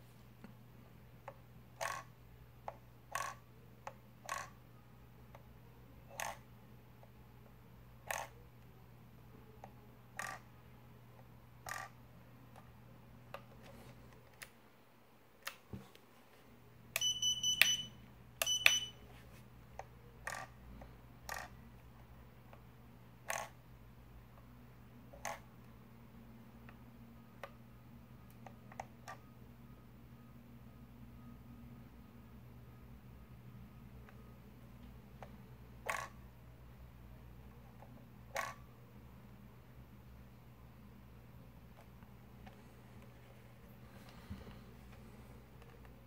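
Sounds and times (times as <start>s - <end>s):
high electronic beeps: 17.0s - 19.0s.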